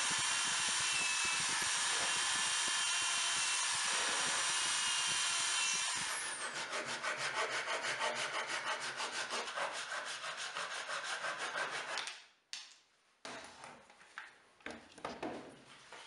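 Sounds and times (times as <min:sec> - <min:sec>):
pull saw cutting wood: 0:00.0 - 0:12.0.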